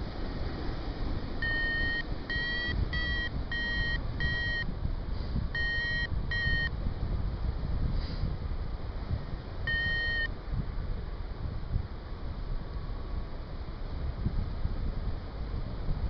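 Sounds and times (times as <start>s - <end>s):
wind rumble on microphone: 0.0s - 16.0s
variometer beeping: 1.4s - 4.7s, 5.5s - 6.7s, 9.7s - 10.3s.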